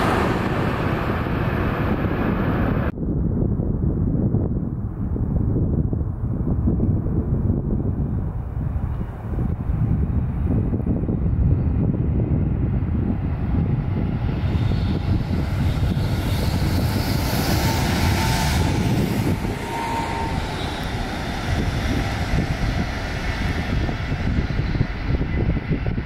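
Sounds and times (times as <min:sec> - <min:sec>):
electric train passing hiss: 0:00.0 - 0:01.8, 0:14.7 - 0:23.5
wind rumble on microphone: 0:00.0 - 0:26.0
brief high whines: 0:15.8 - 0:22.2.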